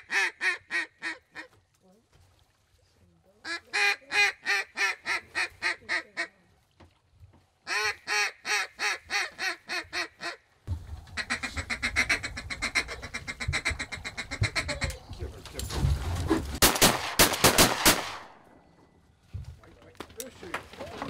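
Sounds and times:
duck call quacks: 0:00.0 - 0:01.5, 0:11.2 - 0:14.9
low wind rumble: 0:10.7 - 0:16.6.

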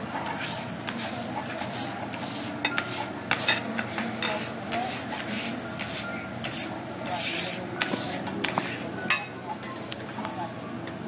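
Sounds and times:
food sizzling: 0:00.0 - 0:07.8
metal spatula scraping griddle: 0:00.2 - 0:08.8.

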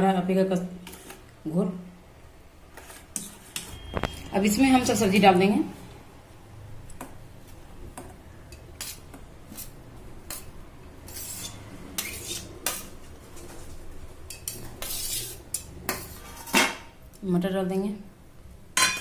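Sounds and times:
spoon scraping a plate: 0:02.7 - 0:04.3, 0:08.6 - 0:13.5, 0:14.3 - 0:16.9.

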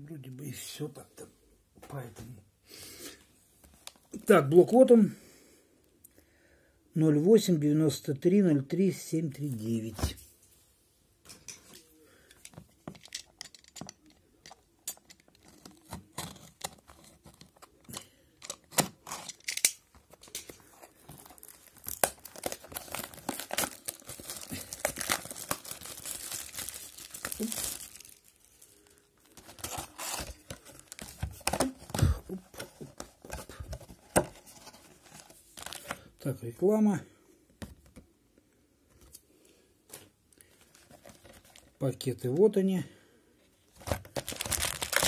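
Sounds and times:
cellophane tearing and crinkling: 0:18.7 - 0:33.0, 0:35.0 - 0:35.9, 0:43.8 - 0:45.0.

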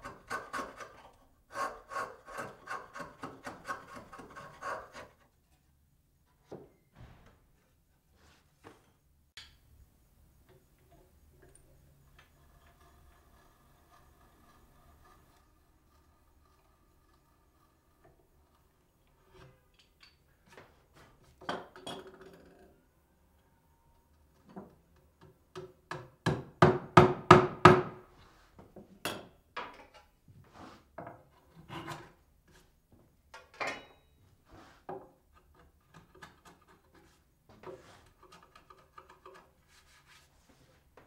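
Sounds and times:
chisel scraping wood: 0:00.0 - 0:05.3, 0:12.0 - 0:19.6, 0:30.6 - 0:32.6, 0:34.5 - 0:40.3.

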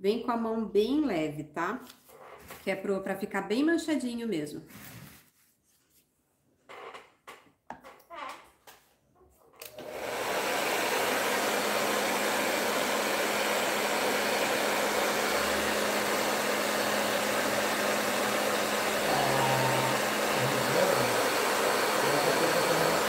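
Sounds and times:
hair dryer running: 0:09.6 - 0:23.0.

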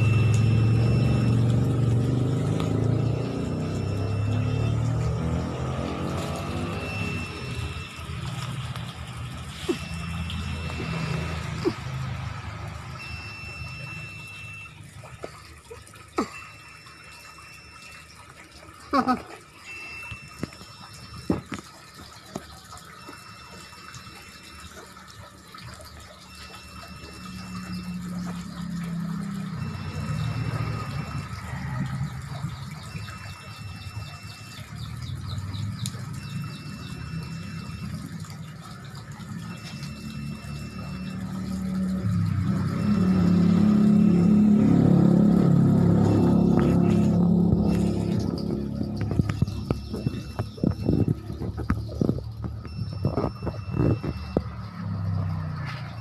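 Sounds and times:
faint high beep: 0:00.0 - 0:01.5, 0:03.0 - 0:04.9, 0:06.4 - 0:08.4, 0:09.6 - 0:11.7, 0:13.0 - 0:14.8, 0:19.6 - 0:21.4, 0:26.3 - 0:28.8, 0:29.5 - 0:32.0, 0:39.4 - 0:56.0
water splashing and trickling: 0:00.0 - 0:56.0.

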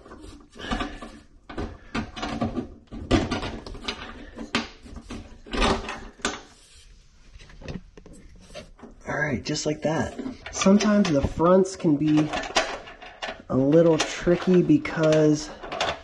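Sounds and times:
plastic clips scraping metal: 0:10.0 - 0:16.0.

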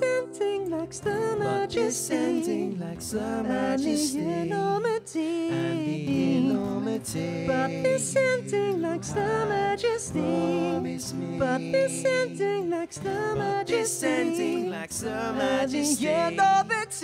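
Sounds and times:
men singing in harmony: 0:01.0 - 0:17.0
strummed acoustic guitar: 0:05.5 - 0:17.0.

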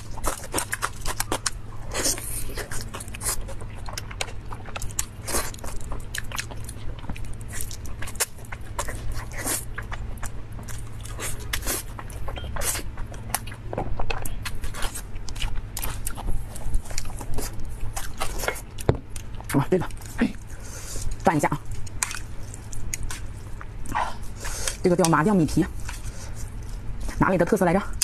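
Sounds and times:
chewing and biting: 0:00.0 - 0:27.2.

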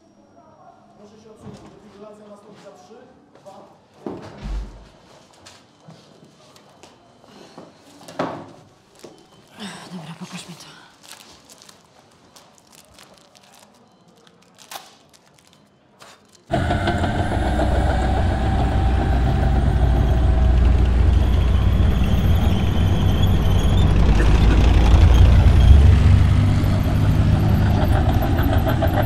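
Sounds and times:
heavy vehicle engines rumbling: 0:16.5 - 0:29.0.

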